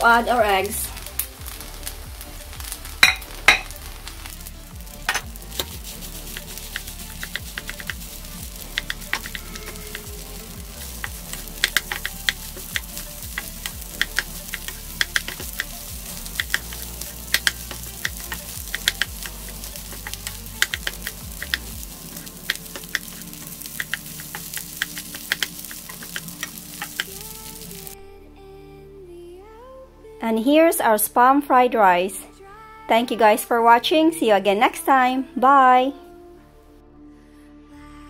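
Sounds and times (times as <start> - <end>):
rice sizzling in a wok: 0.0 - 28.0
spatula tapping metal pan: 6.4 - 8.0, 10.8 - 27.3.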